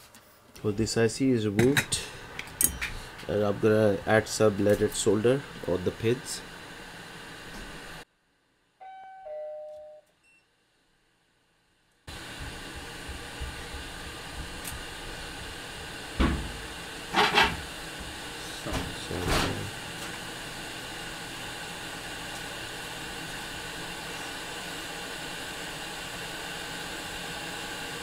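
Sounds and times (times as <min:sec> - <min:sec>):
steady equipment hiss: 0:00.0 - 0:08.0, 0:12.1 - 0:28.0
two-note electronic chime: 0:08.8 - 0:10.0.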